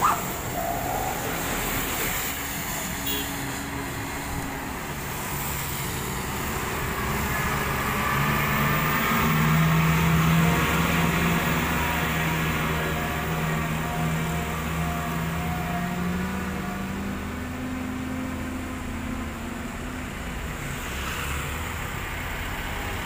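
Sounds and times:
truck diesel engine humming: 0.0 - 23.0
tyre hiss on wet road: 0.1 - 8.4.

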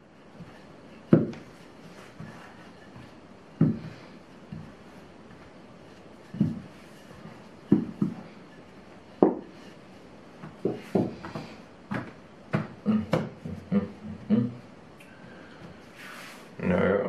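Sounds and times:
rolling pin knocking on table: 1.1 - 1.5, 7.7 - 8.2, 9.2 - 9.5.

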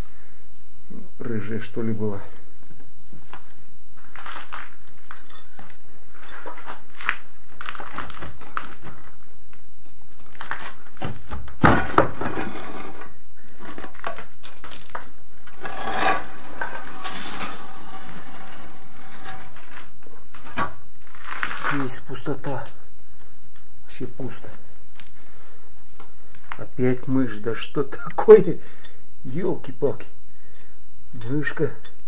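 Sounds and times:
concrete slabs clattering and scraping: 11.6 - 13.0, 15.5 - 19.7.

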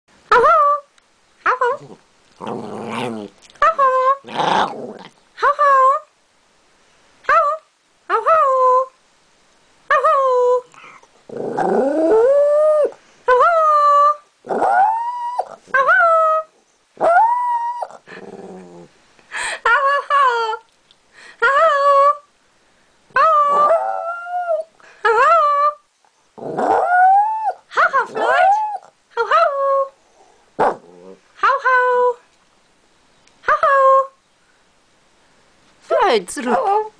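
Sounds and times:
dog howling: 11.8 - 18.0, 23.2 - 25.8, 26.6 - 28.9.

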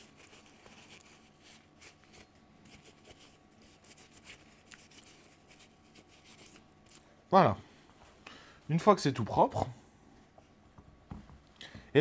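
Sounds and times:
paper towel rustling: 0.0 - 6.6.

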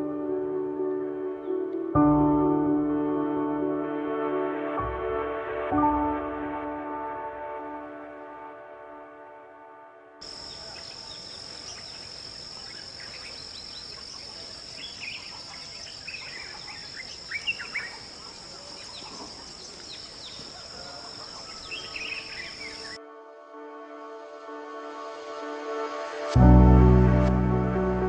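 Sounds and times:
soft music: 0.0 - 11.1, 21.7 - 28.0
high-pitched insect drone: 10.2 - 23.0
short chirping calls: 10.2 - 23.0.

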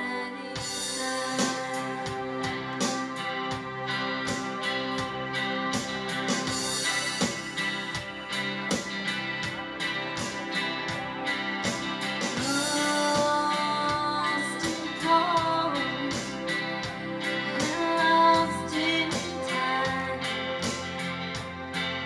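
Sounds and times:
woman singing: 0.0 - 3.2, 12.4 - 16.8, 17.5 - 20.6
live rock band playing: 0.6 - 22.0.

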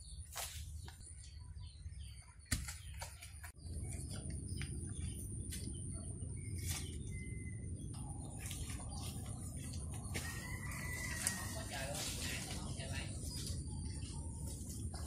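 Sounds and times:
faint bird chirps: 0.0 - 11.4
steady low rumble: 3.5 - 15.0.

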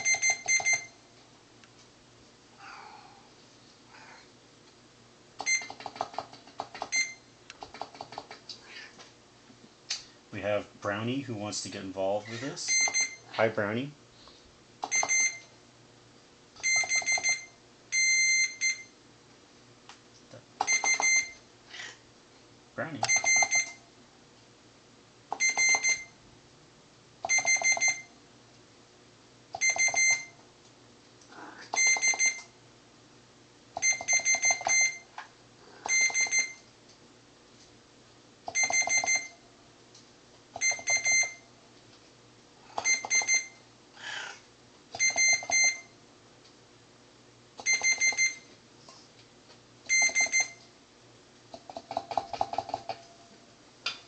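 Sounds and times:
multimeter continuity beeps: 0.0 - 1.0, 5.4 - 5.8, 6.8 - 7.3, 12.6 - 13.3, 14.8 - 15.5, 16.6 - 19.0, 20.6 - 21.4, 23.0 - 23.8, 25.3 - 26.2, 27.2 - 28.2, 29.6 - 30.4, 31.7 - 32.6, 33.8 - 35.1, 35.9 - 36.7, 38.5 - 39.4, 40.6 - 41.5, 42.8 - 43.6, 45.0 - 46.0, 47.6 - 48.5, 49.9 - 50.6.

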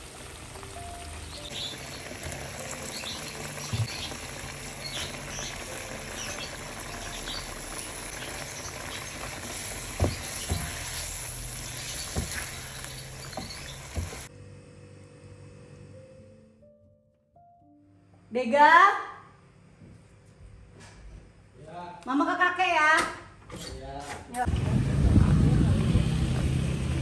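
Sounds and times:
sauce simmering and bubbling: 0.0 - 14.3.

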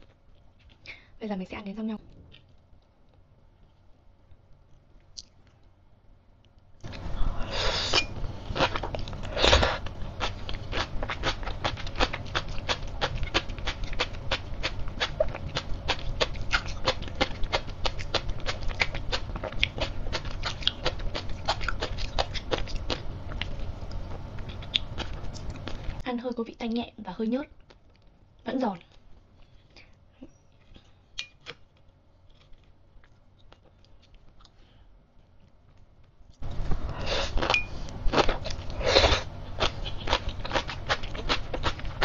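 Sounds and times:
chewing crisp seaweed crackling: 8.5 - 26.0, 27.6 - 29.6, 30.5 - 34.6, 35.4 - 42.0.

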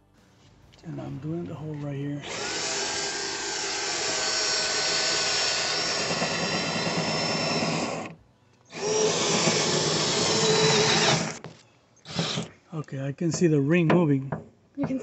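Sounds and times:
cordless drill whining: 2.2 - 12.5.

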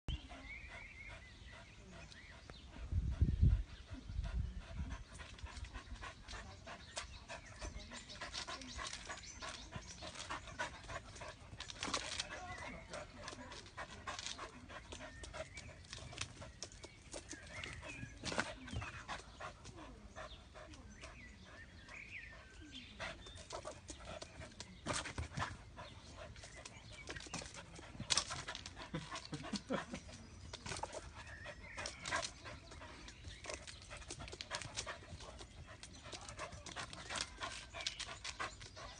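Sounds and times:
dog panting: 0.1 - 38.9
claws scrabbling on bark: 5.2 - 19.8, 23.0 - 38.9.

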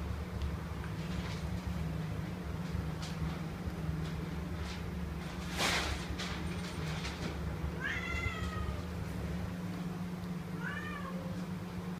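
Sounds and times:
kitten meowing: 7.8 - 8.9, 10.6 - 11.3.

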